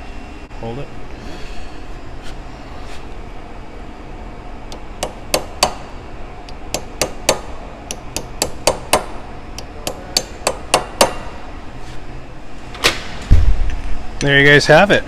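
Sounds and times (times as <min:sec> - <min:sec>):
hammer tapping metal: 0:04.7 - 0:05.9, 0:06.5 - 0:11.4.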